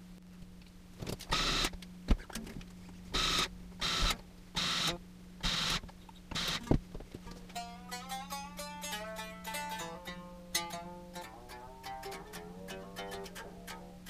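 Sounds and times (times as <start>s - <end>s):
low electrical hum: 0.0s - 14.0s
guitar tuning pegs winding: 7.3s - 14.0s.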